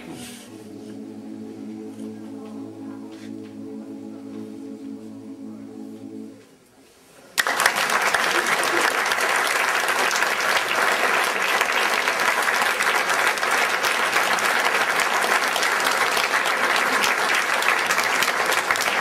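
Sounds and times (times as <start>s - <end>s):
audience applauding: 7.4s - 19.0s.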